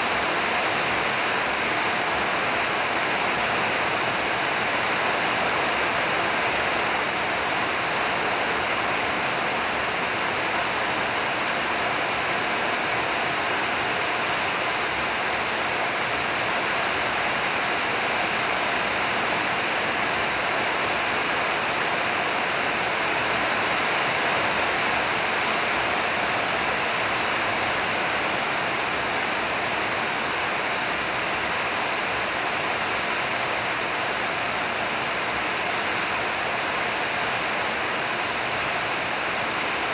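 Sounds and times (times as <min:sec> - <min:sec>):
rushing hiss of background noise: 0:00.0 - 0:39.9.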